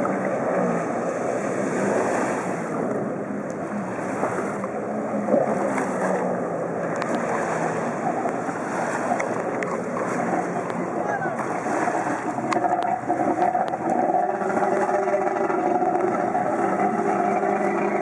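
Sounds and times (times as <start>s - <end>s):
jet ski engine running: 0.0s - 18.0s
water spray rushing: 7.1s - 18.0s.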